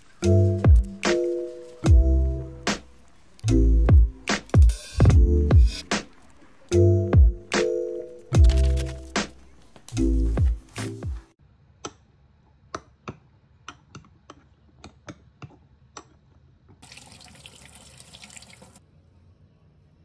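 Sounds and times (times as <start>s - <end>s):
background music: 0.0s - 11.4s
tap running water: 16.8s - 18.8s.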